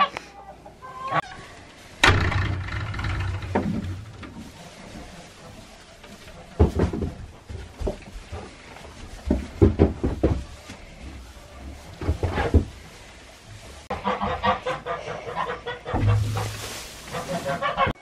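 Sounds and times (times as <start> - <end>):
goats bumping wooden stall: 2.0 - 4.4, 6.6 - 10.5.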